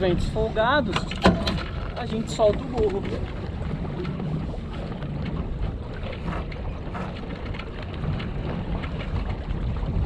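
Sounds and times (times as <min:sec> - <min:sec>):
water washing along hull: 0:00.0 - 0:10.0
wind rushing over microphone: 0:00.0 - 0:10.0.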